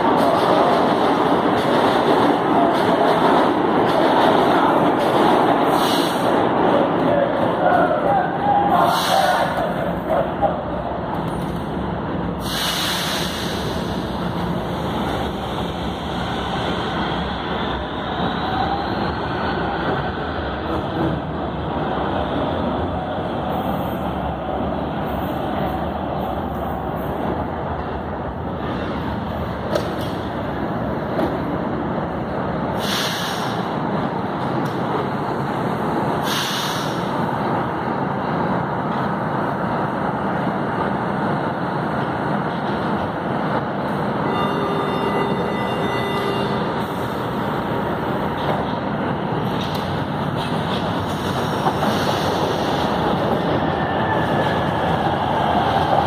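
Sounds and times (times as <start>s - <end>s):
train wheels rumbling: 0.0s - 56.0s
air release hiss: 12.4s - 14.0s, 32.8s - 33.6s, 36.2s - 37.1s.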